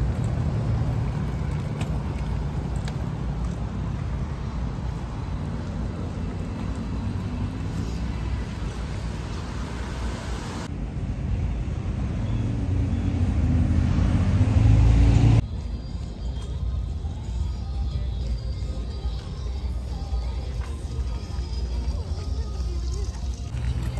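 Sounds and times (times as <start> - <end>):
cars driving past: 0.0 - 15.6
low vehicle rumble: 0.0 - 23.9.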